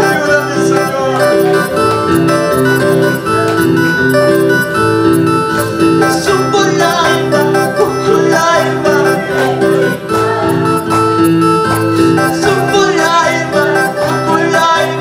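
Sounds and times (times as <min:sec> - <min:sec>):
man singing: 0:00.0 - 0:02.0, 0:05.9 - 0:10.6, 0:12.0 - 0:15.0
electronic keyboard worship song: 0:00.0 - 0:15.0.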